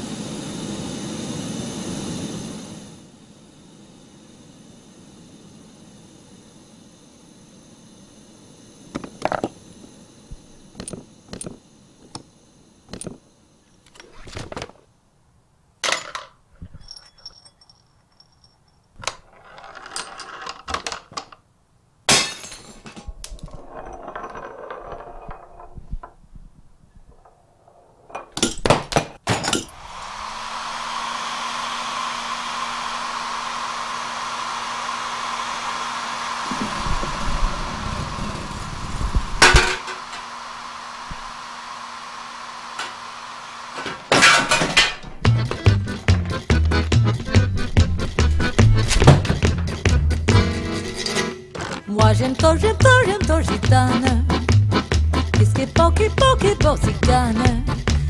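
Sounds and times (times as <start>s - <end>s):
clicks knocks and glassy clinks: 15.8s - 19.2s
objects rolling and rattling: 15.8s - 21.4s, 22.5s - 29.8s
hair dryer running: 29.6s - 49.2s.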